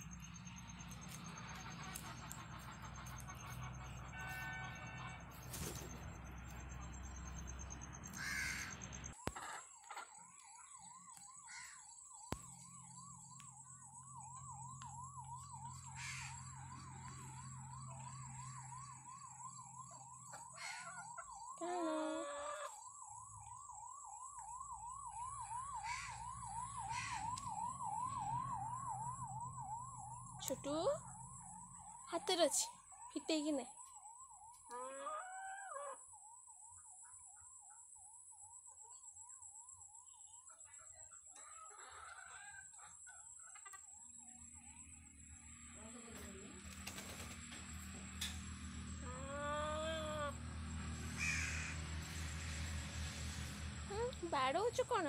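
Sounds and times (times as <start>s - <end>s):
electronic siren-like wail: 0.0s - 40.2s, 43.8s - 46.2s, 47.3s - 55.0s
crow cawing: 8.2s - 8.8s, 11.5s - 11.9s, 15.9s - 16.5s, 20.6s - 21.2s, 25.8s - 26.2s, 26.9s - 27.4s, 51.1s - 52.0s.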